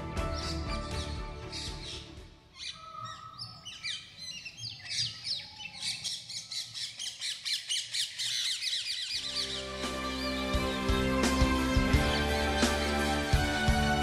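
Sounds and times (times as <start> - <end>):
birds chirping: 0.2 - 14.0.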